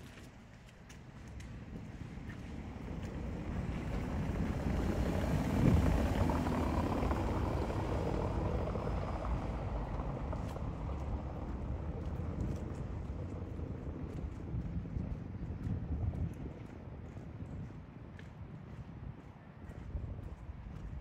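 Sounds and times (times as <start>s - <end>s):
motor vehicle passing: 1.5s - 16.3s.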